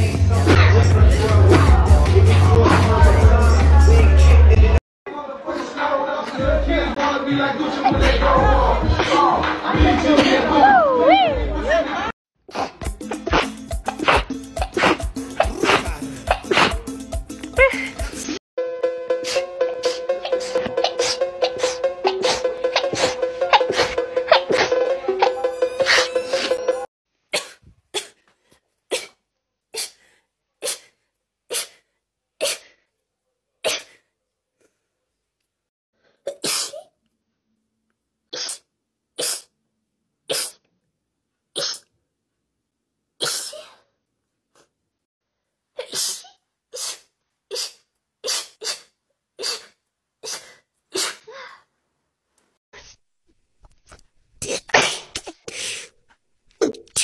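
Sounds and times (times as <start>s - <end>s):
woman sneezing: 12.5s - 16.8s, 17.6s - 18.1s, 30.6s - 31.8s, 36.3s - 36.9s, 43.2s - 43.9s, 45.8s - 51.6s.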